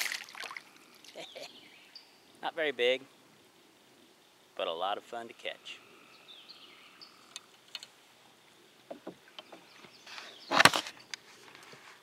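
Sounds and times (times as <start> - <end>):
water splash at a kayak: 0.0 - 0.7.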